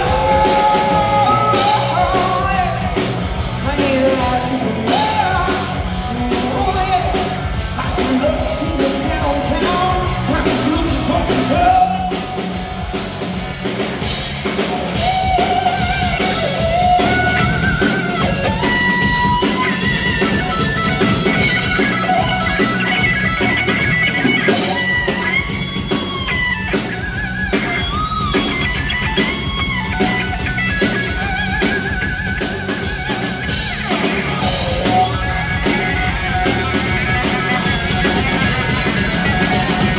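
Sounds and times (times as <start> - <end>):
man singing: 0.0 - 3.0, 3.6 - 12.5, 14.9 - 19.4
drum kit: 0.0 - 39.9
electric guitar: 0.0 - 39.9.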